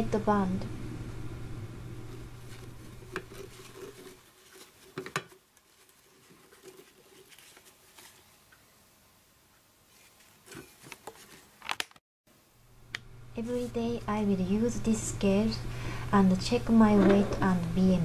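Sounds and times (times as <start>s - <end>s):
soft fabric rustling: 2.1s - 8.8s, 9.4s - 11.7s.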